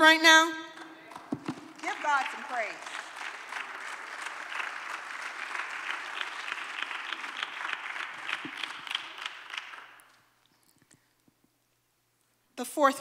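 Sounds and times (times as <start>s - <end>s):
congregation applauding: 0.8s - 10.3s.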